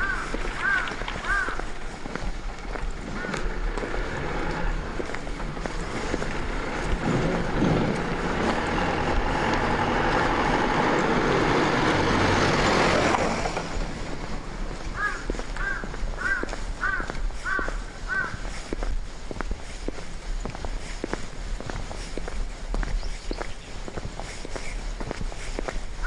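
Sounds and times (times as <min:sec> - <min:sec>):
truck driving past: 0:02.9 - 0:14.7.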